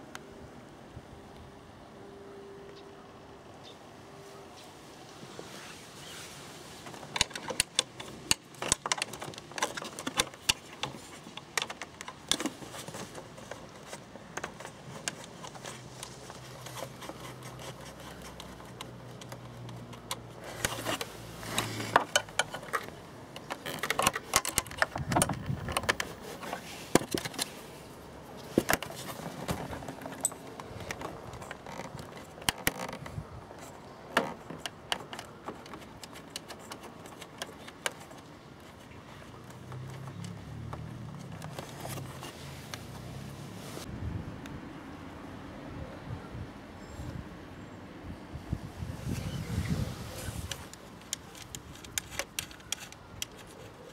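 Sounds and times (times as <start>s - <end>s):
clicks and rattles of parts: 6.8s - 42.9s, 50.4s - 53.9s.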